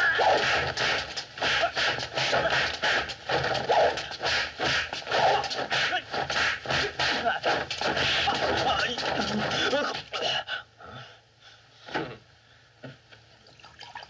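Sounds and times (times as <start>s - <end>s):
fighters shouting and grunting: 0.0s - 10.5s.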